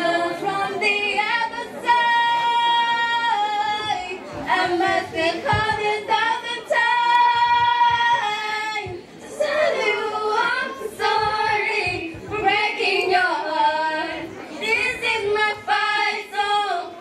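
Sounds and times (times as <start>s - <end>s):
girls singing a cappella: 0.0s - 17.0s.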